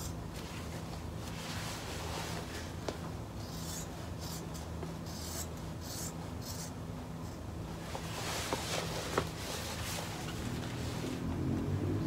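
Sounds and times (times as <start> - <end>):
steady low hum: 0.0 - 12.0
neoprene rustling: 7.8 - 11.3.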